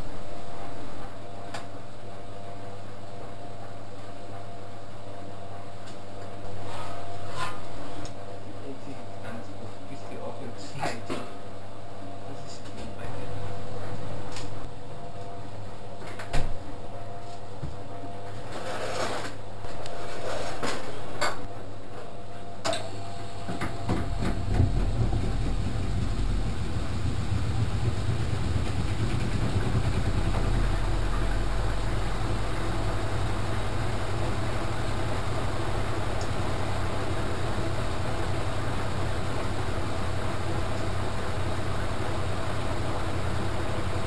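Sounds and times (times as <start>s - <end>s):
washing machine motor hum: 0.0s - 44.0s
washing machine drum rumbling: 22.6s - 44.0s.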